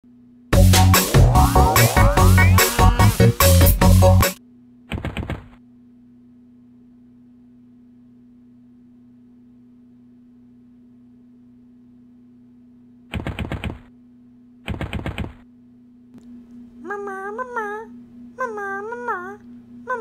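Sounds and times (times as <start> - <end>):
rapid clicking bursts: 14.7 - 15.4
steady low hum: 15.3 - 20.0.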